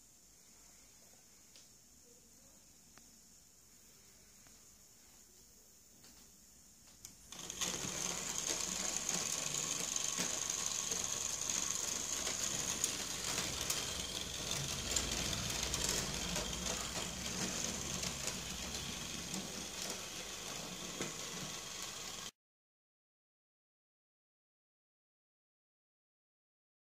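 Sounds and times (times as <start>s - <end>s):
small electric motor whirring: 7.3s - 22.3s.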